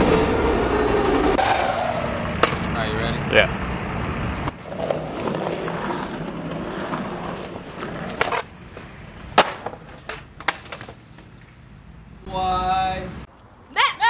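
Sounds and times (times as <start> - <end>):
skateboard wheels rolling on concrete: 1.4 - 12.8
skateboard knocking on concrete: 4.5 - 11.6.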